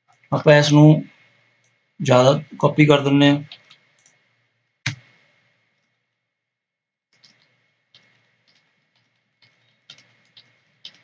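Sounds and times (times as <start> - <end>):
computer keyboard keys clicking: 7.2 - 11.0.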